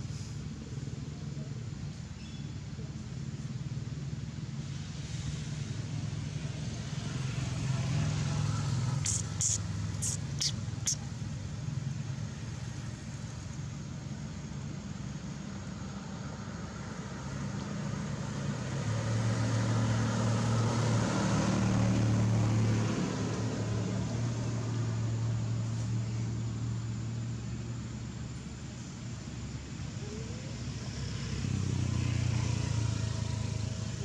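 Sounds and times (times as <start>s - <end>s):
low engine hum: 0.0s - 34.0s
short high chirps: 9.0s - 11.0s.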